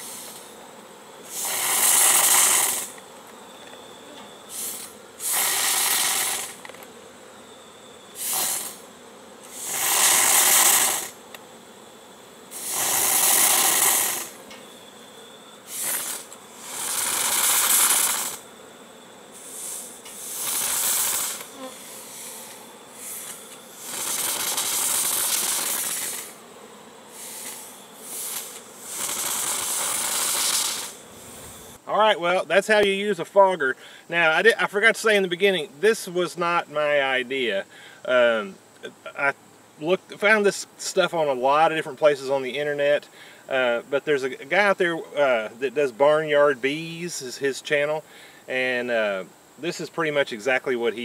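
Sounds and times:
fogger hissing bursts: 0.0 - 0.5, 1.2 - 3.0, 4.4 - 6.6, 8.1 - 8.8, 9.4 - 11.2, 12.5 - 14.4, 15.6 - 18.4, 19.3 - 26.4, 27.1 - 31.8.

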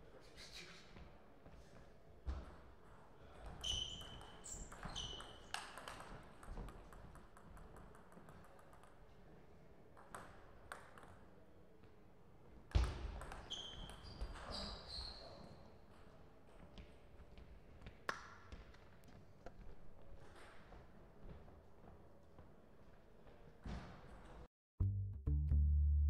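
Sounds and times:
table tennis ball hits and bounces: 2.3 - 9.0, 10.0 - 11.3, 12.7 - 14.7.

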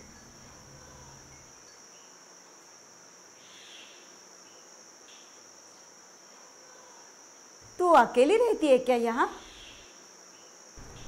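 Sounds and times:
high-pitched insect-like trill: 0.0 - 11.0
low hum: 10.8 - 11.0.

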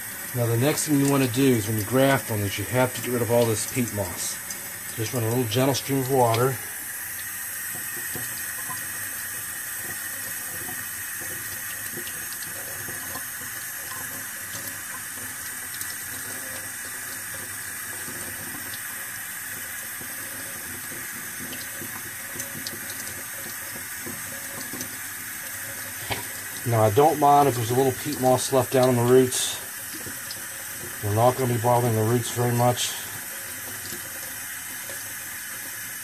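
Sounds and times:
tap water running into sink: 0.0 - 36.0.

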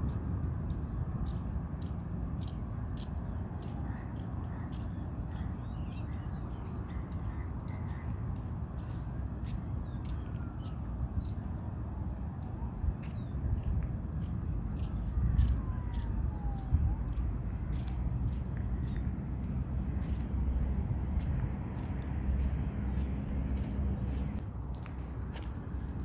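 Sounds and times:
steady low rumble: 0.0 - 26.0
bird calls: 3.6 - 10.9.

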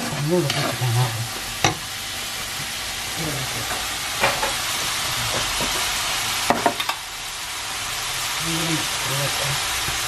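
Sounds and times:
wooden spatula scraping: 0.0 - 1.2
small fish sizzling in a pan: 0.0 - 10.0.

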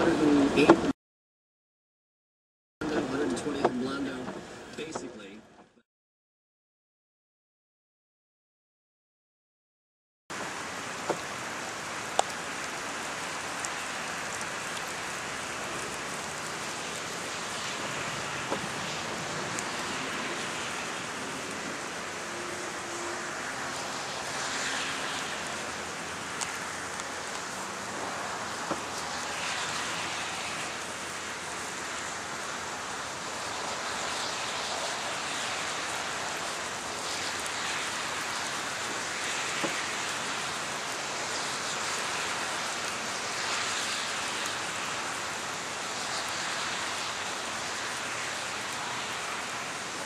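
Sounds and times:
heavy rain rushing: 0.0 - 0.9, 10.3 - 50.0.

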